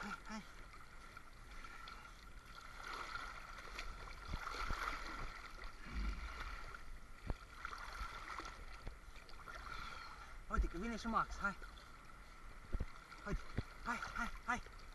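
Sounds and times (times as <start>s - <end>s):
water sloshing and splashing: 0.0s - 14.9s.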